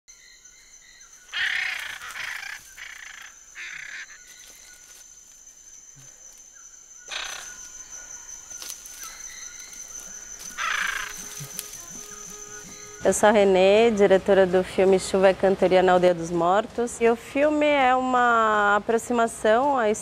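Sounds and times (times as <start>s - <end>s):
macaw squawks: 1.3s - 4.2s, 7.1s - 7.6s, 10.5s - 13.1s
steady high-pitched tone: 4.9s - 15.0s.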